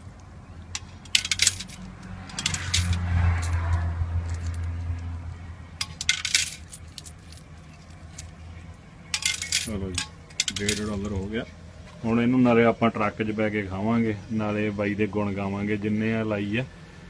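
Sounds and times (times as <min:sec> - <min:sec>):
coins clinking in metal box: 0:00.8 - 0:03.6, 0:05.8 - 0:08.3, 0:09.1 - 0:11.1.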